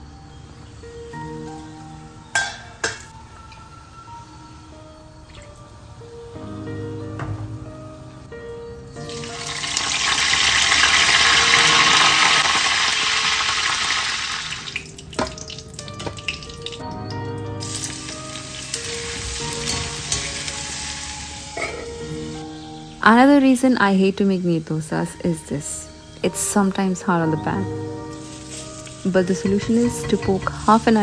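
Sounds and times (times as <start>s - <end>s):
background music: 0.0s - 31.0s
hot oil sizzling and spattering: 9.0s - 16.9s, 17.6s - 22.5s, 28.0s - 31.0s.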